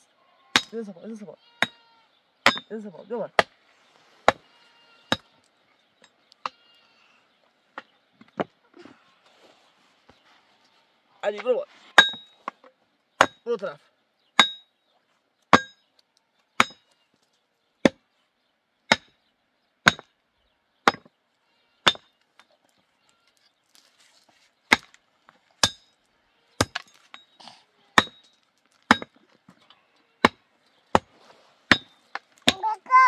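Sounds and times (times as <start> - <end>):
pickaxe striking stony ground: 0.6 - 0.8, 2.4 - 2.7, 12.0 - 12.6, 13.2 - 13.4, 14.4 - 14.7, 15.5 - 15.8, 16.6 - 16.9, 18.9 - 19.2, 19.8 - 20.1, 20.8 - 21.1, 21.8 - 22.5, 24.7 - 25.0, 25.6 - 26.0, 26.6 - 27.4, 28.0 - 29.3, 30.2 - 32.8.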